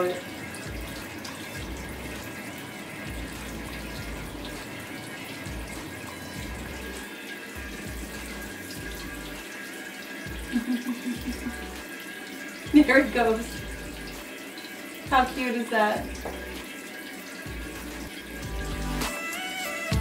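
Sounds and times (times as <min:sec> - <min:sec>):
water splashing into tub: 0:00.0 - 0:19.3.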